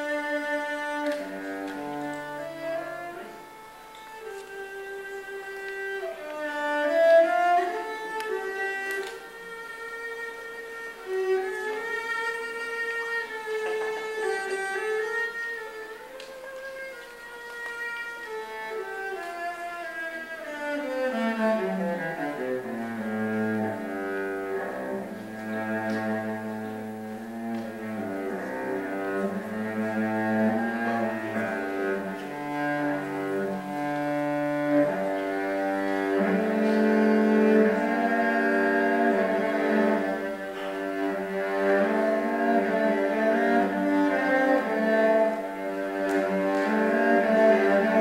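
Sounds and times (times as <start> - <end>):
bowed cello melody: 0.0 - 48.0.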